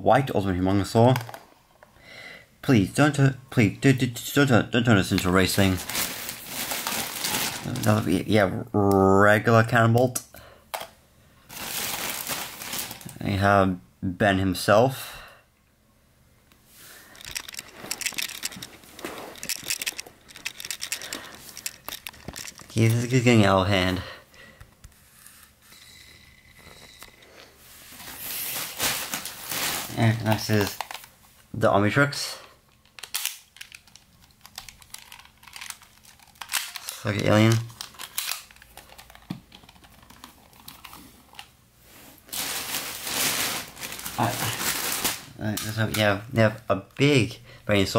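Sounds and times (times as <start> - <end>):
plastic clicks and rustles: 1.1 - 1.4, 17.0 - 23.3, 28.6 - 31.2, 32.7 - 41.6
loud rustling: 5.6 - 7.9, 11.5 - 13.1, 16.9 - 23.2, 42.2 - 45.3
plastic toy clicks: 19.4 - 22.7.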